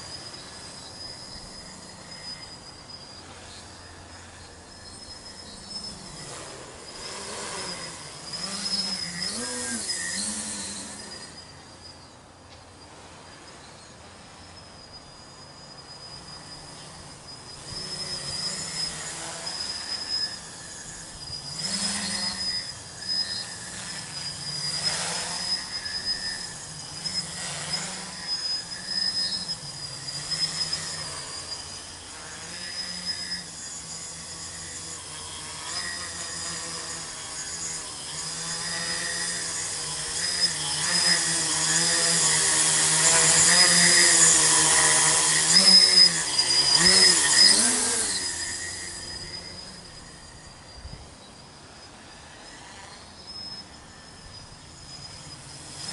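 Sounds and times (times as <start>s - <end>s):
drone motors buzzing whine: 0.0s - 55.9s.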